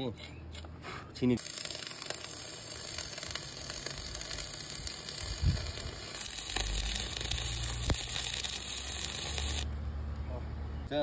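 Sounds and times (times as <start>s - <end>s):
welding arc crackling: 1.3s - 9.8s.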